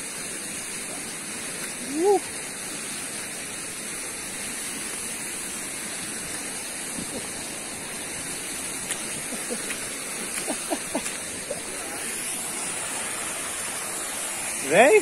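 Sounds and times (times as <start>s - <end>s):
stream rushing over rock: 0.0s - 15.0s.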